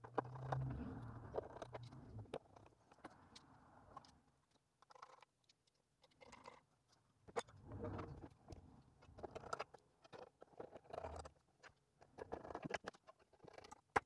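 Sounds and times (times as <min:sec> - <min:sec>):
hands rubbing plastic case: 0:00.0 - 0:03.4.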